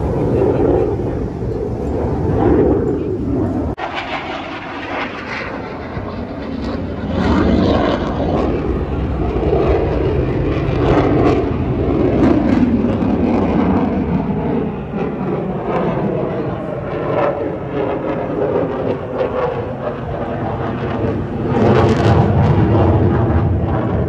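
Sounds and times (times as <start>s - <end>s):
aircraft engine rumble: 0.0s - 24.0s.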